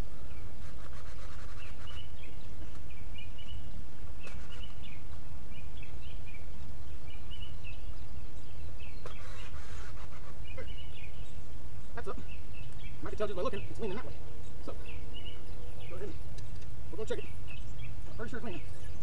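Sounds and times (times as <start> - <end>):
low wind rumble: 0.0 - 19.0
small birds chirping: 0.0 - 19.0.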